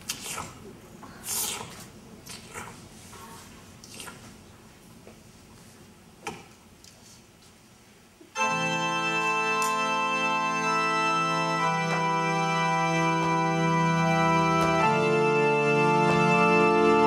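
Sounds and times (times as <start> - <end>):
keyboard organ chords: 8.4 - 17.0.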